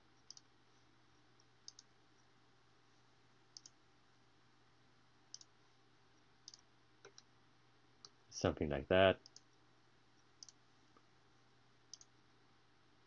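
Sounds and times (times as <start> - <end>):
faint room hiss: 0.0 - 13.0
computer mouse clicking: 0.2 - 0.5, 1.4 - 1.9, 3.6 - 3.8, 5.3 - 5.5, 6.4 - 7.3, 9.2 - 9.6, 10.4 - 10.6, 11.9 - 12.1.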